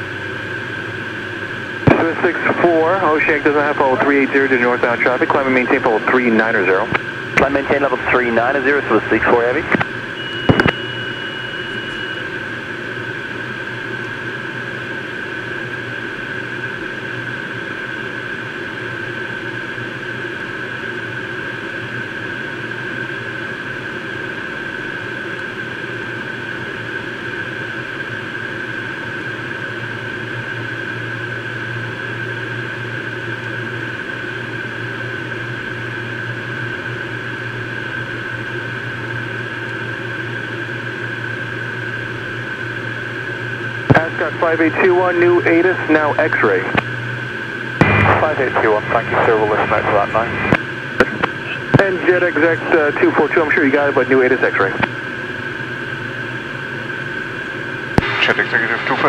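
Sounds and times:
jet engine and airflow rush: 0:00.0 - 0:21.3, 0:30.7 - 0:59.0
high-pitched whine: 0:00.0 - 0:22.2, 0:27.9 - 0:59.0
low hum: 0:00.3 - 0:14.2, 0:34.4 - 0:59.0.

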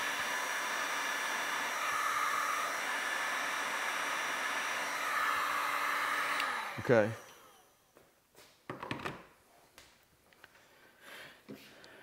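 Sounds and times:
heat gun blowing air: 0:00.0 - 0:07.8.

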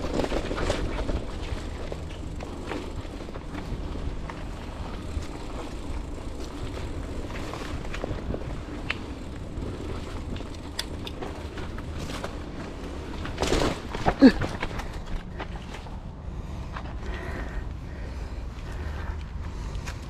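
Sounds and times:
small clicks and rattles: 0:00.0 - 0:15.8
mountain bike rolling on dirt: 0:00.0 - 0:20.0.

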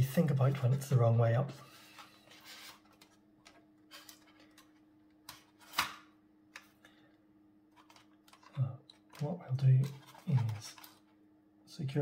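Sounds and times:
plastic parts clicking: 0:07.8 - 0:11.1.

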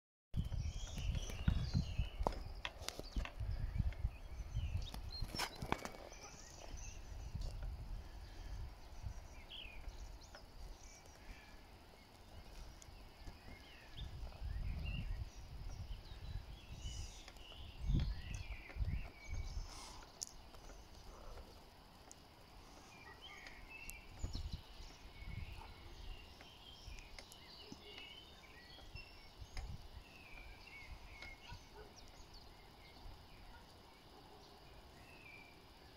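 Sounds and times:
wind gusting over microphone: 0:00.4 - 0:19.9, 0:24.0 - 0:27.0
small birds chirping: 0:00.4 - 0:35.9.

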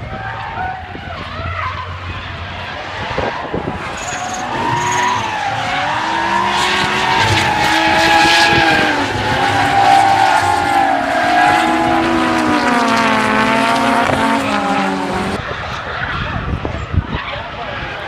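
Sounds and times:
car engine revving hard: 0:02.6 - 0:15.4
tyres squealing: 0:03.3 - 0:12.5.

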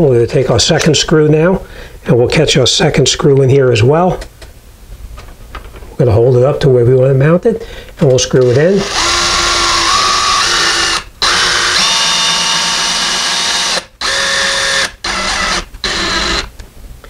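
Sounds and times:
cordless drill motor whine: 0:08.4 - 0:16.5.

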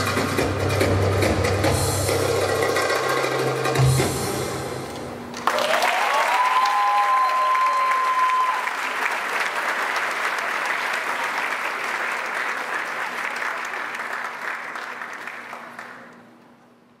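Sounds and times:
audience applauding: 0:05.4 - 0:16.3.

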